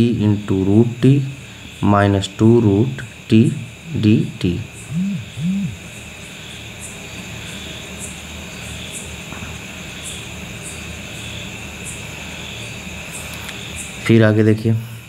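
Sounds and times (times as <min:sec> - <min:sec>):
high hiss: 0:00.6 - 0:08.7
low hum: 0:03.4 - 0:06.0
faint high-pitched chirps: 0:04.3 - 0:05.9.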